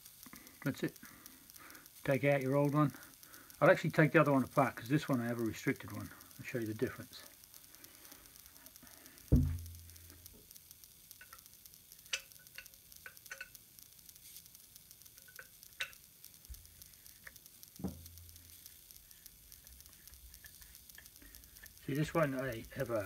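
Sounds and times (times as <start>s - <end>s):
dull thump on bench: 9.3s - 9.7s
spanner clicking and tapping metal: 11.1s - 13.6s, 15.0s - 23.0s.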